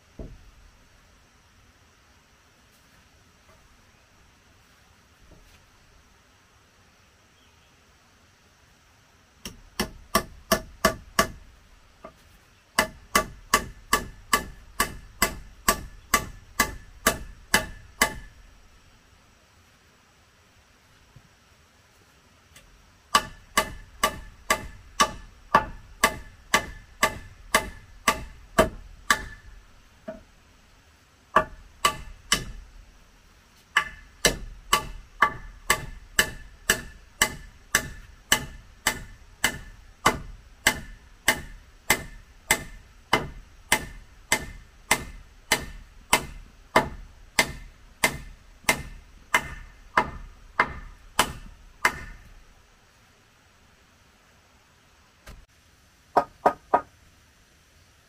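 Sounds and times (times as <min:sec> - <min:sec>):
hand tool striking wood: 0:00.2 - 0:00.4, 0:09.4 - 0:18.4, 0:22.6 - 0:30.3, 0:31.3 - 0:32.7, 0:33.6 - 0:52.4, 0:56.2 - 0:56.9.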